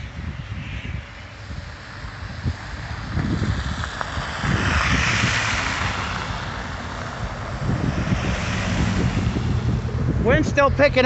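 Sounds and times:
wind buffeting microphone: 0:00.0 - 0:11.0
tyres hissing on slushy road: 0:01.7 - 0:09.4.

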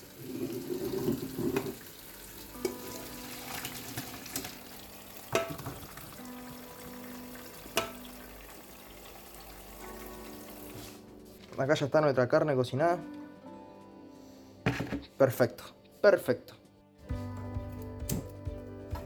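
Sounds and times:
tap water running into sink: 0:00.0 - 0:10.7
metal pot knocks: 0:05.3 - 0:06.2, 0:07.7 - 0:08.1.

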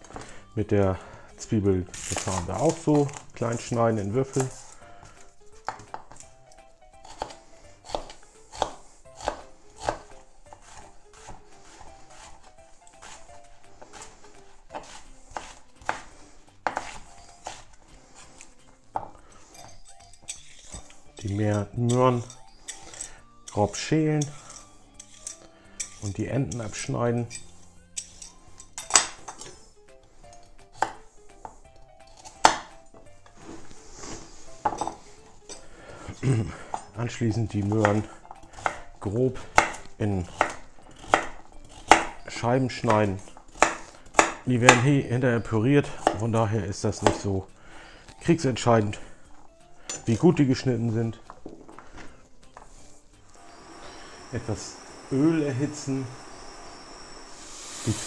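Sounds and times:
knife chopping on wooden board: 0:05.6 - 0:06.2, 0:07.0 - 0:19.2, 0:30.8 - 0:31.6, 0:32.2 - 0:32.8, 0:37.6 - 0:42.2, 0:42.8 - 0:44.9, 0:45.9 - 0:46.3, 0:47.0 - 0:47.3.

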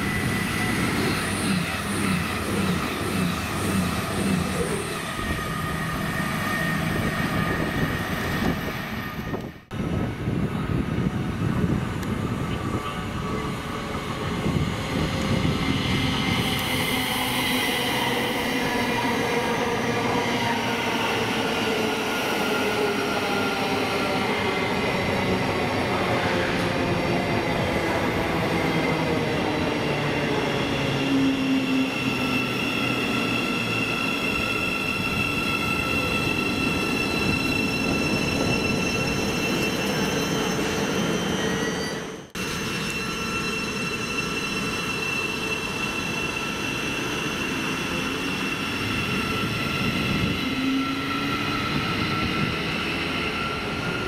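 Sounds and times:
train rumbling: 0:00.0 - 0:54.0
train whining tones: 0:00.0 - 0:54.0.

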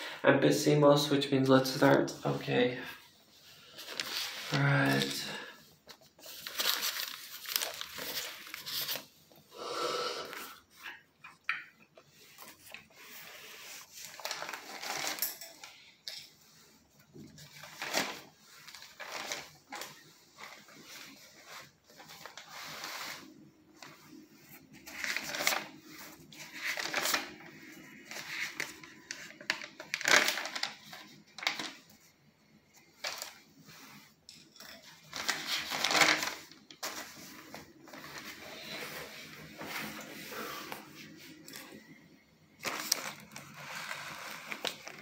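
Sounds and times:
paper pages rustling: 0:03.4 - 0:09.4, 0:12.0 - 0:32.1, 0:32.7 - 0:45.0.

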